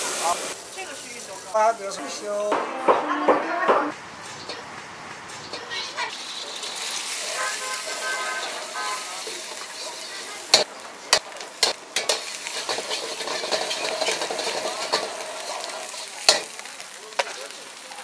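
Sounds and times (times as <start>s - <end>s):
rice sizzling in a wok: 0.0s - 2.6s, 5.5s - 18.0s
ladle clanging on wok: 6.4s - 16.6s.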